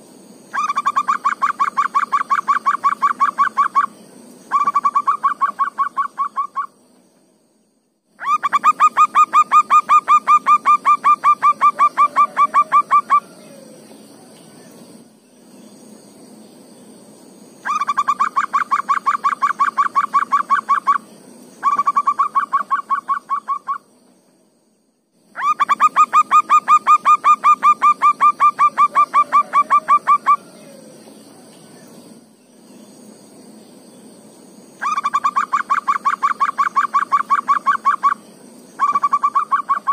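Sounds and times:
dove cooing: 8.2 - 14.3, 25.4 - 31.5.

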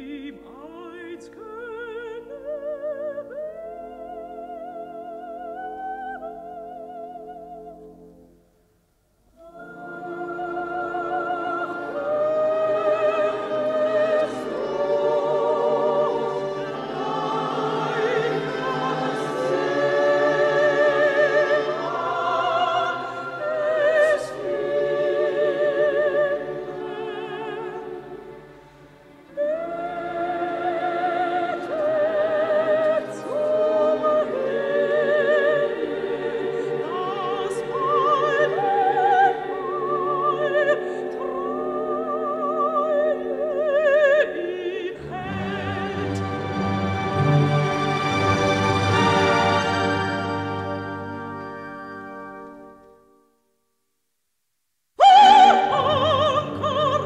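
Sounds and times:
operatic soprano singing: 0.0 - 7.9, 9.4 - 51.6, 55.0 - 57.0
full orchestra: 9.4 - 53.0, 55.0 - 57.0.

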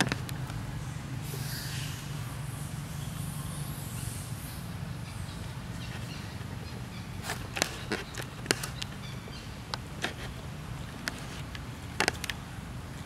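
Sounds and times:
low background hum: 0.0 - 13.0
sharp clicks and crackles: 10.9 - 12.4.

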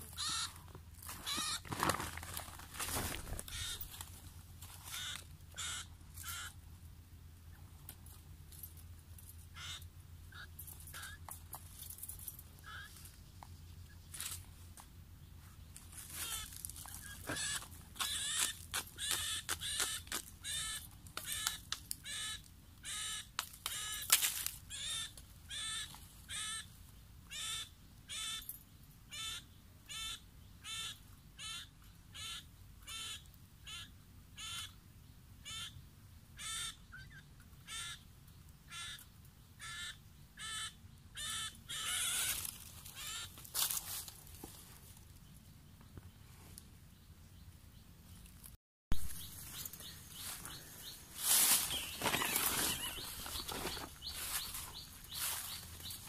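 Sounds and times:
rustling: 0.0 - 5.4, 48.2 - 56.0
animal calling: 0.1 - 0.6, 1.2 - 1.7, 3.3 - 3.9, 4.9 - 6.6, 9.6 - 11.2, 35.4 - 35.8, 36.4 - 38.0, 39.6 - 43.4, 49.1 - 56.0.

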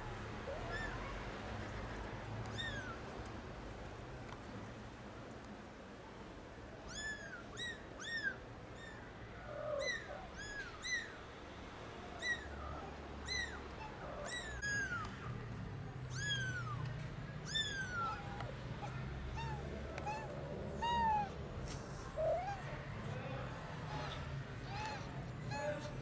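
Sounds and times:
kittens mewing: 6.8 - 11.2, 12.1 - 26.0.

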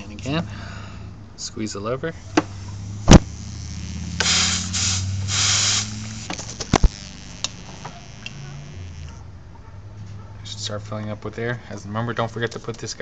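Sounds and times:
low hum: 2.1 - 9.3
compressed air hissing: 2.2 - 9.1
air hose click: 4.2 - 7.6.

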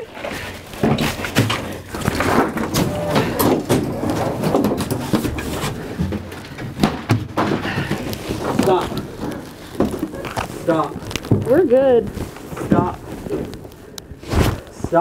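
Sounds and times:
scuffling struggle on metal floor: 0.2 - 11.5.

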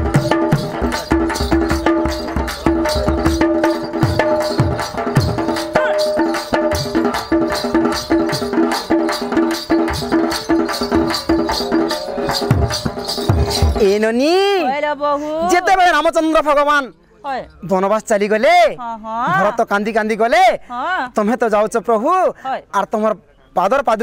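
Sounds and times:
fast drum strokes: 0.0 - 14.0
rattling percussion: 0.0 - 14.5.

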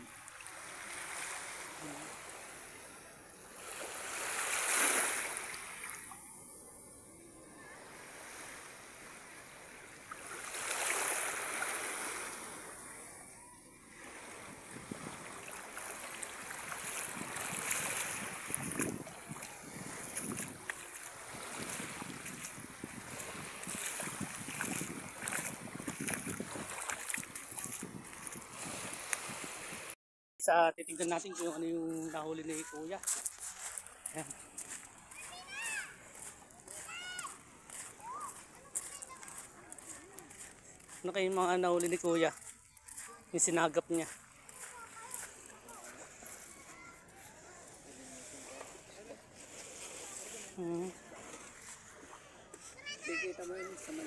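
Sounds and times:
small waves washing on sand: 0.0 - 30.0, 31.0 - 54.0
shallow seawater sloshing: 0.1 - 2.9, 3.5 - 6.2, 7.8 - 30.0, 47.8 - 54.0
water crackles: 9.1 - 30.0
wind buffeting microphone: 14.4 - 15.4, 17.0 - 20.7, 21.3 - 30.0.

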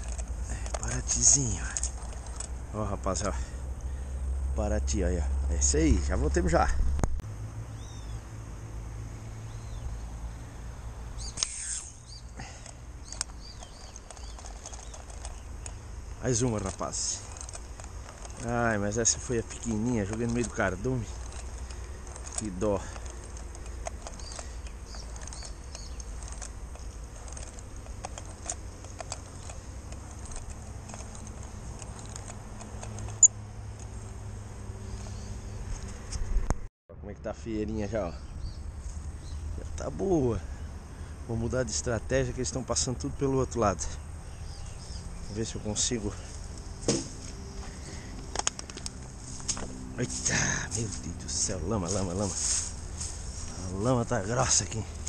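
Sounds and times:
small birds chirping: 0.0 - 4.7, 7.7 - 8.4, 9.3 - 36.1, 37.8 - 55.0
sharp click: 11.2 - 12.0
sharp snap: 11.3 - 12.0
fishing reel clicking: 13.0 - 33.3.

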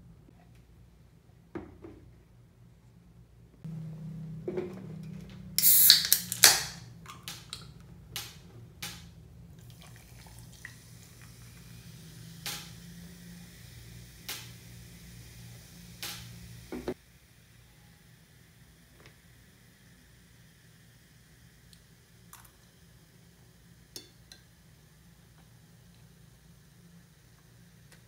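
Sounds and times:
drink fizzing: 5.6 - 7.8, 9.5 - 13.4
drink can opening crack and hiss: 5.6 - 9.1, 12.4 - 12.9, 14.2 - 14.6, 16.0 - 16.9, 21.6 - 22.7
drink pouring over ice: 9.6 - 11.6.

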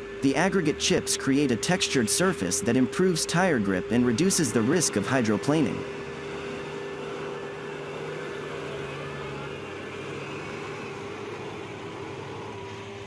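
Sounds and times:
machine engine droning: 0.0 - 13.0.

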